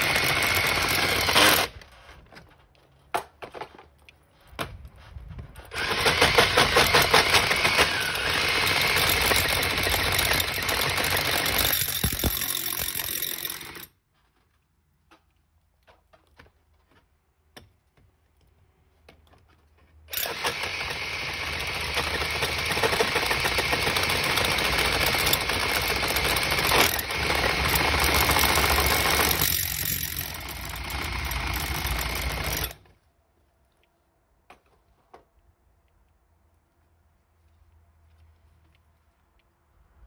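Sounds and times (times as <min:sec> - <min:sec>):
power drill boring into brick: 0:00.0 - 0:01.8, 0:05.7 - 0:13.9, 0:20.1 - 0:32.8.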